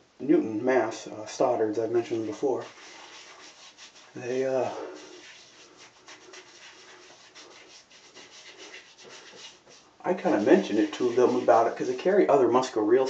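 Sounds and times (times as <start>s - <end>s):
fingers rubbing stubble: 2.1s - 12.1s.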